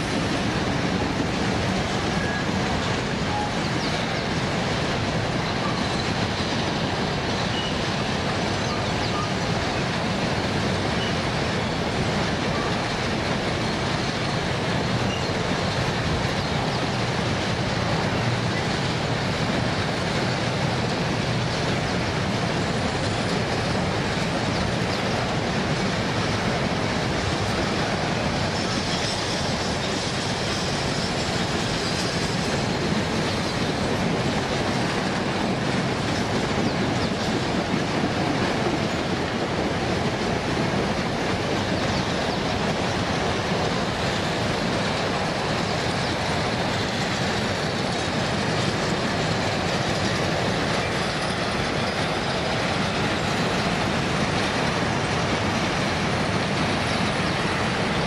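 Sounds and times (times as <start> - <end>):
train wheels rumbling on rails: 0.0 - 58.0
faint high wheel squeal: 2.1 - 4.4, 5.5 - 8.0, 10.9 - 11.2, 15.0 - 15.6.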